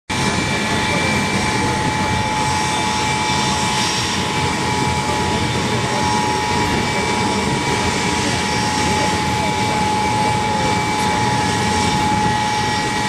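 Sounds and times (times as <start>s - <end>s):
jet engines whining: 0.1s - 13.0s.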